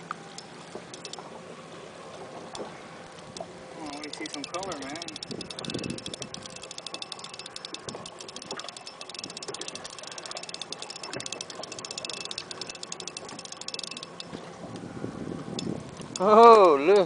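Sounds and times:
spinning reel clicking: 0:00.9 - 0:01.2, 0:03.8 - 0:14.4, 0:15.6 - 0:16.8.

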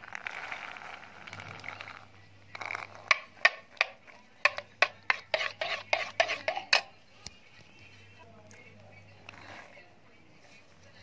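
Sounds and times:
spoon clinking against a bowl: 0:03.0 - 0:07.0.

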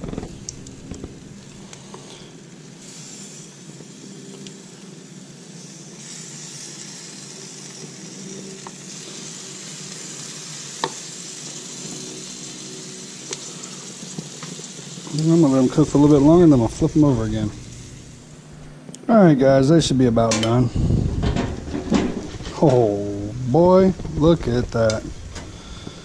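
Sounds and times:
fish sizzling on a grill: 0:00.0 - 0:18.5.

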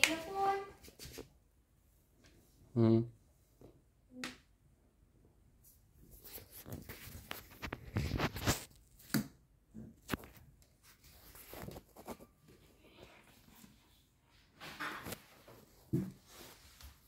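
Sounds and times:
close rustling and scraping: 0:06.0 - 0:08.7, 0:10.1 - 0:17.0.

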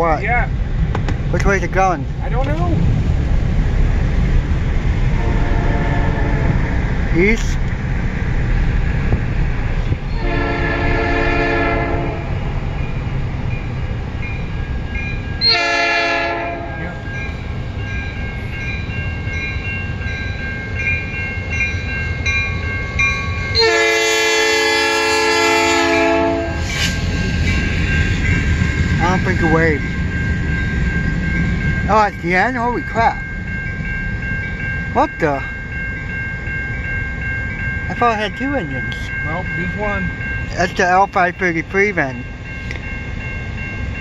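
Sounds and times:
low rumble: 0:00.0 - 0:15.7, 0:25.8 - 0:40.6
locomotive horn blasts: 0:05.2 - 0:06.7, 0:10.1 - 0:12.4, 0:15.4 - 0:17.0, 0:23.5 - 0:26.7
crossing signal bell ringing: 0:10.1 - 0:44.0.

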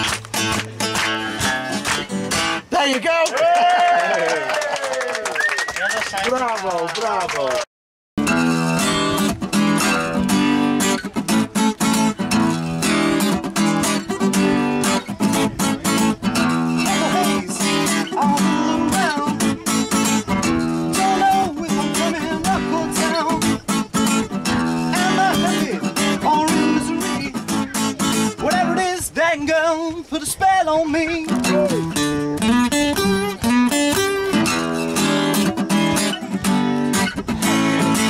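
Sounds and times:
acoustic guitar strumming: 0:00.0 - 0:03.1, 0:08.2 - 0:38.0
man singing: 0:16.6 - 0:19.9, 0:20.6 - 0:23.8, 0:24.8 - 0:32.0.

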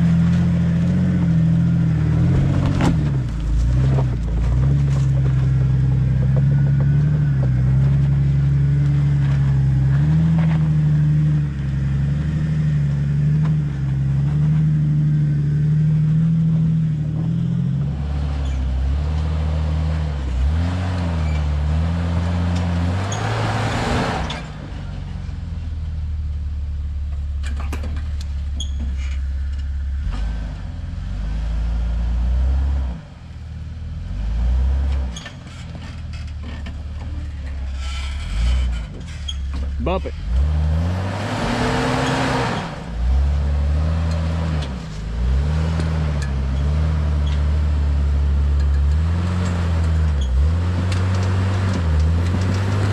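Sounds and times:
car engine at low revs: 0:00.0 - 0:52.9.

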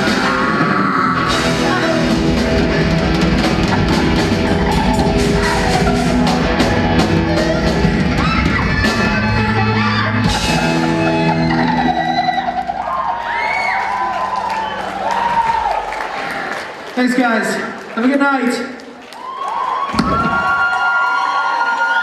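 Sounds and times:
drum kit pounding: 0:00.0 - 0:12.8
electric guitar chords: 0:00.0 - 0:13.2.

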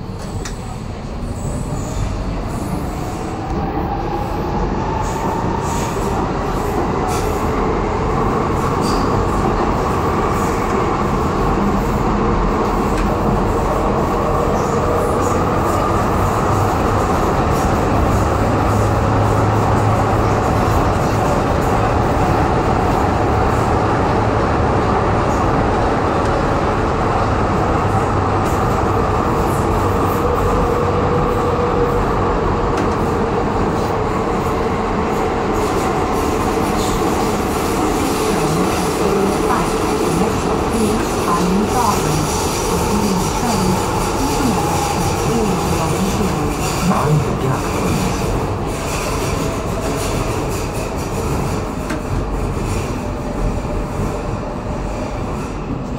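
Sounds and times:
wheels rumbling on track: 0:00.0 - 0:55.9.

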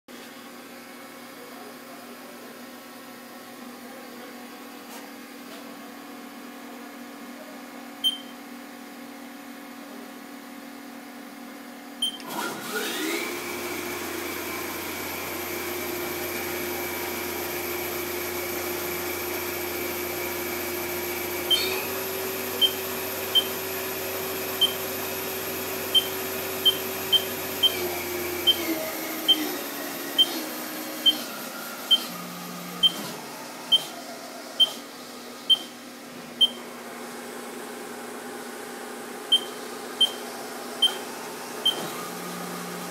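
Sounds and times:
short sharp beeps: 0:08.0 - 0:08.4, 0:26.0 - 0:27.8, 0:32.8 - 0:33.0, 0:35.5 - 0:35.7, 0:36.4 - 0:36.6, 0:39.3 - 0:40.2, 0:40.8 - 0:41.0, 0:41.6 - 0:41.9.

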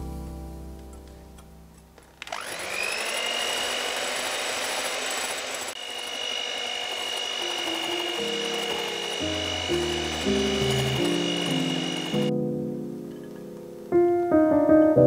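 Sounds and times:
electric hand mixer whine: 0:02.2 - 0:12.3.

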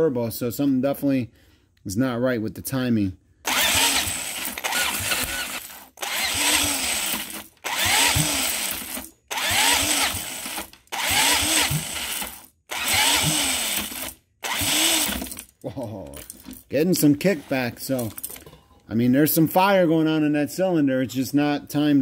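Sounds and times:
electric drill spinning engine: 0:03.4 - 0:15.4.

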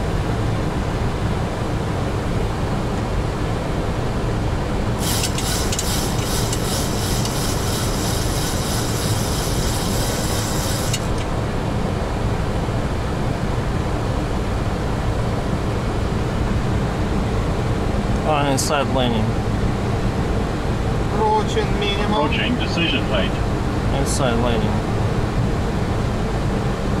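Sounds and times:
cockpit airflow and engine noise: 0:00.0 - 0:27.0
rapid high-pitched rattle: 0:05.0 - 0:11.3.

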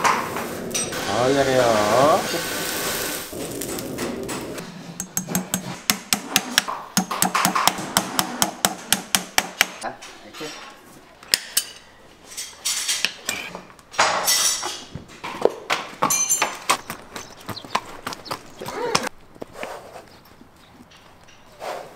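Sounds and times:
metal scraping: 0:00.0 - 0:06.8
hammer tapping nails: 0:05.0 - 0:09.8.

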